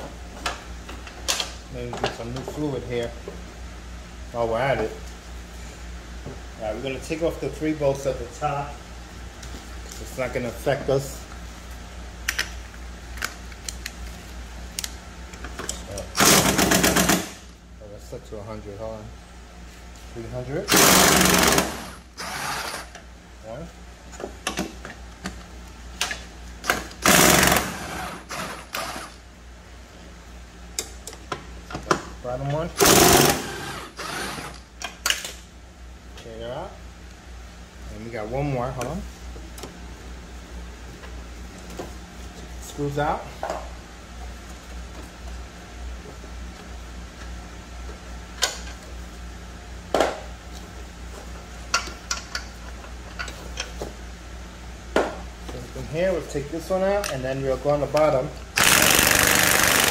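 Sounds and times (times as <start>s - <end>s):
impact wrench hammering: 16.2s - 17.4s, 20.7s - 22.0s, 32.8s - 34.5s, 58.6s - 59.9s.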